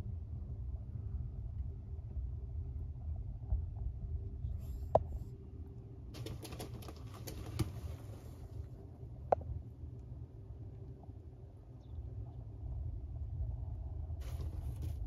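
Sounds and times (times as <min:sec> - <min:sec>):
low steady hum: 0:00.0 - 0:15.0
rustling in wood-chip bedding: 0:14.2 - 0:15.0.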